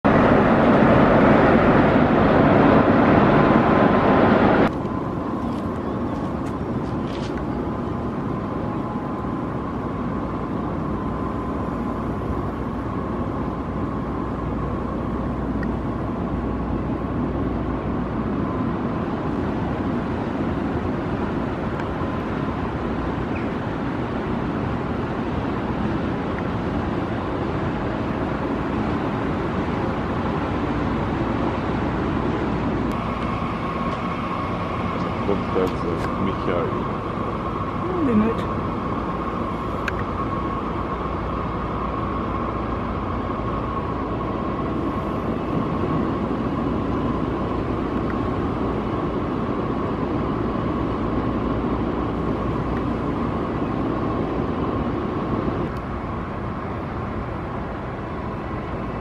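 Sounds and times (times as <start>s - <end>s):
faint constant whine: 0.0s - 59.0s
outdoor machinery hum: 0.0s - 59.0s.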